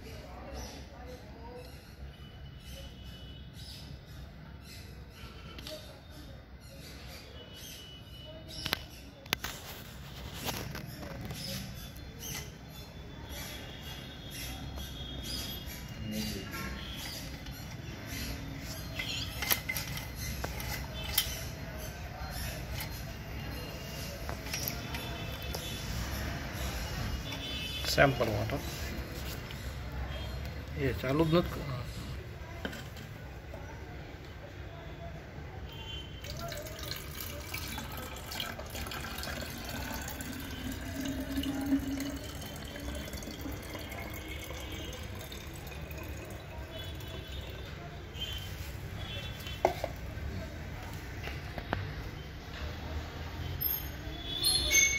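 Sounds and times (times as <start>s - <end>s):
water trickling into bottle: 36.2s - 47.6s.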